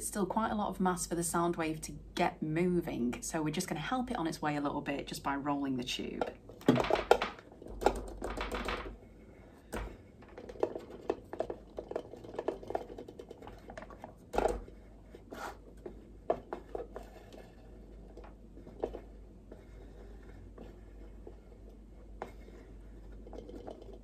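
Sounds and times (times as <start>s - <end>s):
tube rolling in cradles: 6.0s - 24.0s.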